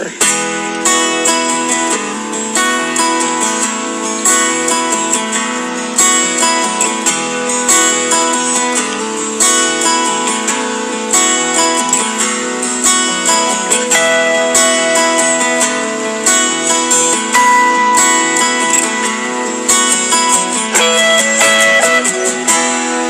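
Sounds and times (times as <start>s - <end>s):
strummed acoustic guitar: 0.0s - 23.0s.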